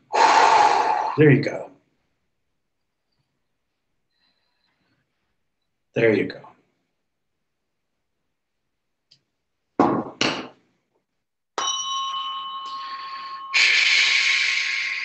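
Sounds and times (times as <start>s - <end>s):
tuning fork ringing: 11.6s - 13.9s.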